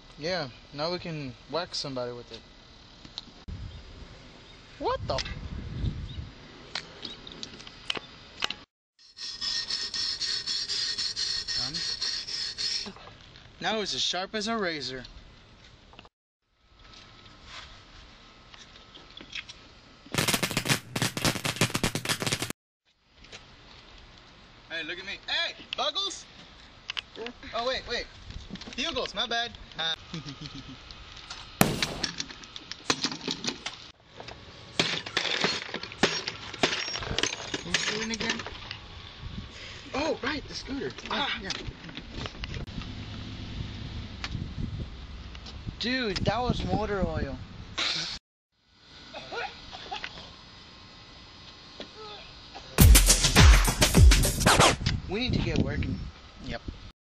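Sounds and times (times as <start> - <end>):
tool rasping on metal: 9.0 - 13.0
sharp clatter: 20.2 - 22.5.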